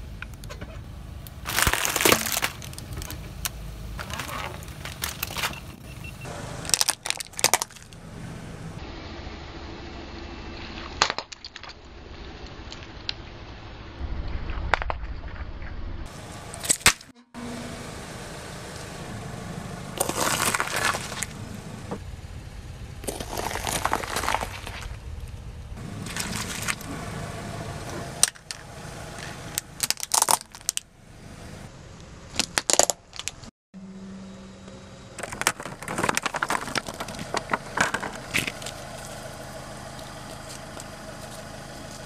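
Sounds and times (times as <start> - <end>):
car engine low hum: 0.0 - 11.1, 11.8 - 42.0
peppers squashing and bursting: 1.4 - 3.2
plastic toy cracking: 35.2 - 38.6.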